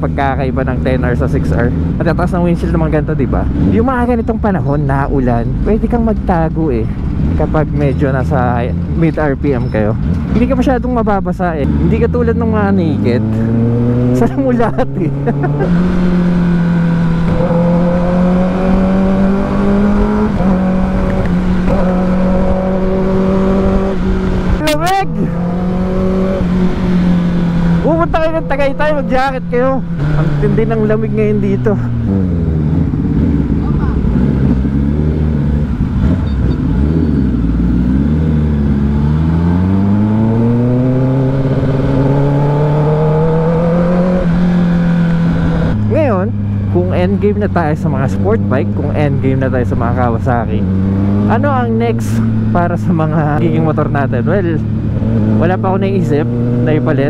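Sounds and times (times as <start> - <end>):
motorcycle engine accelerating: 0.0 - 57.0
wind noise: 13.2 - 46.8.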